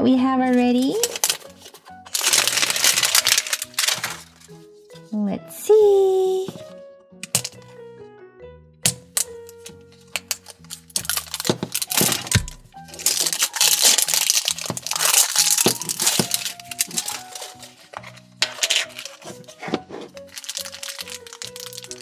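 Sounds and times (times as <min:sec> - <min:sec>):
background music: 0:00.0 - 0:22.0
plastic shell cracking: 0:00.5 - 0:04.5, 0:07.2 - 0:07.8, 0:08.8 - 0:22.0
plastic wrap crinkling: 0:00.5 - 0:04.6, 0:09.1 - 0:22.0.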